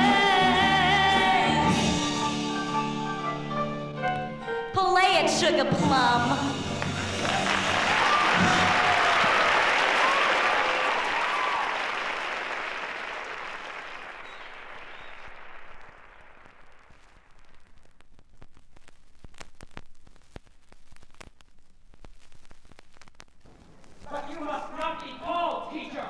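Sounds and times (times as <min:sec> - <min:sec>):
vinyl record crackle: 0:05.0 - 0:26.0
audience applause: 0:06.6 - 0:17.0.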